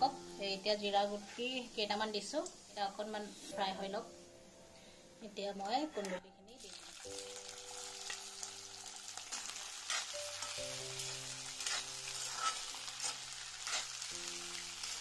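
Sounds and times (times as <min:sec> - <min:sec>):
vegetables sizzling in hot oil: 0:00.0 - 0:03.4, 0:06.6 - 0:15.0
stirring scrapes in a wok: 0:09.3 - 0:10.6, 0:11.6 - 0:14.1.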